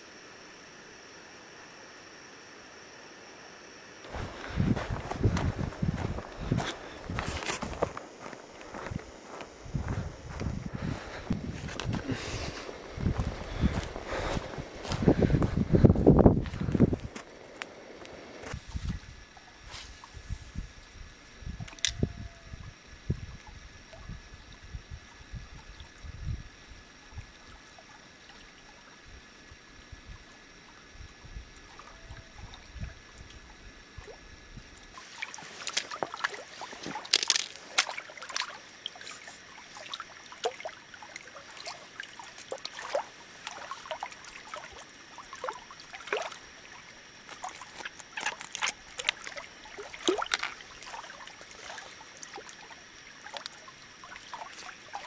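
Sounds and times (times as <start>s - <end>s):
water lapping against rocks: 4.1s - 18.6s, 34.9s - 55.0s
wind rumbling on microphone: 4.1s - 27.4s, 31.0s - 34.8s
hands splashing in water: 35.0s - 40.7s, 47.3s - 52.6s.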